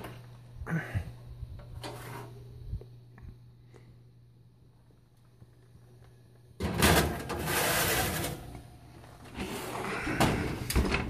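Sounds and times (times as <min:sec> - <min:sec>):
baking sheet scraping on wire rack: 0:01.8 - 0:02.5, 0:06.6 - 0:08.6
oven door shutting: 0:06.6 - 0:08.7, 0:09.4 - 0:11.0.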